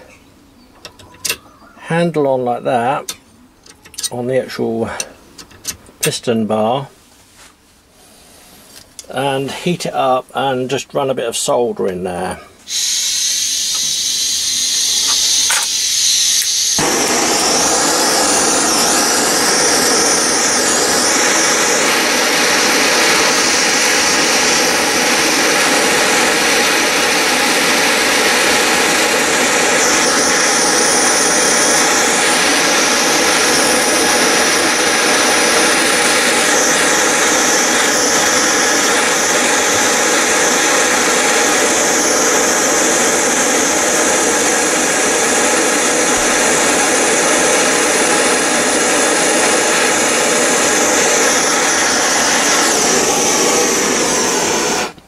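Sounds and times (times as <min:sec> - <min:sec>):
blowtorch flame hissing: 0:12.7 - 0:55.0.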